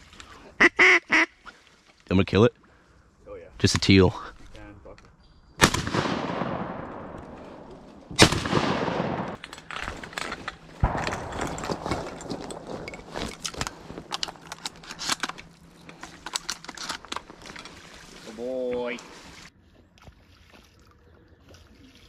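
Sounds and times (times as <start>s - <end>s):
shotgun blasts with echo: 5.6s - 9.4s, 10.8s - 12.8s
rustling: 9.3s - 19.5s.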